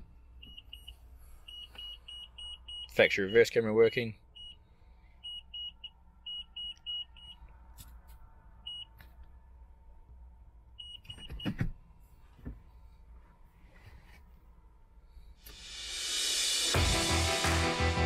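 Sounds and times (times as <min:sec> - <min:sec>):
reverse warning beeper: 0:00.4 - 0:04.6.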